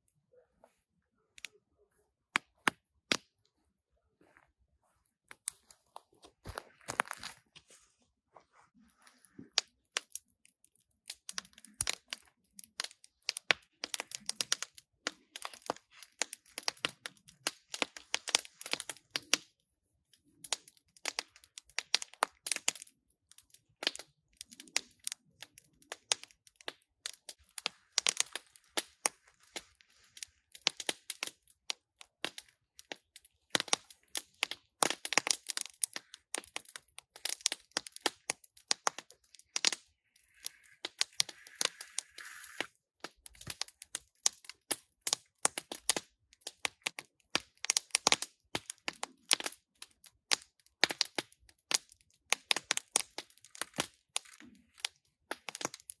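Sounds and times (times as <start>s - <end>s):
campfire crackling and popping: 9.5s - 19.6s, 20.2s - 56.0s.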